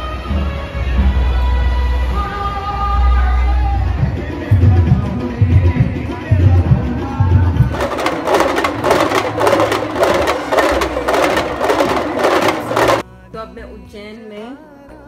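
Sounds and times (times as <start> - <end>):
drums beating: 7.7 - 13.0.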